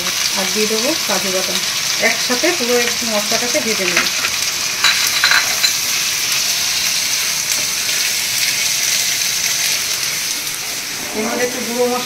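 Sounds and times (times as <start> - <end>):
vegetables sizzling in a frying pan: 0.0 - 12.0.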